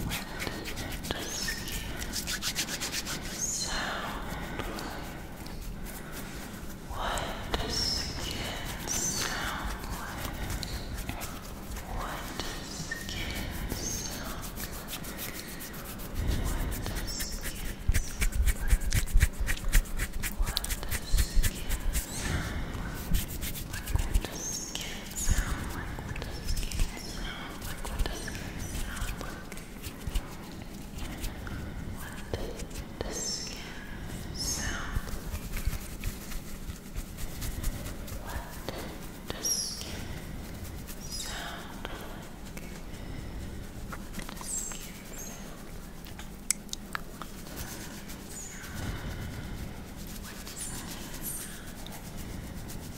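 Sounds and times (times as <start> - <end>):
hands rubbing bare skin: 0.0 - 52.9
quick irregular scratching: 0.0 - 52.9
hands tapping and patting skin: 14.0 - 22.2.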